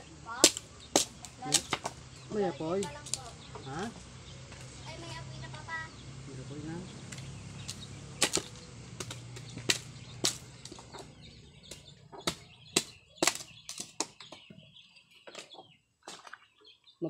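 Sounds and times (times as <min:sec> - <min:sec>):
machete chopping dry bamboo: 0:00.3 - 0:02.0, 0:02.8 - 0:03.3, 0:07.0 - 0:14.3.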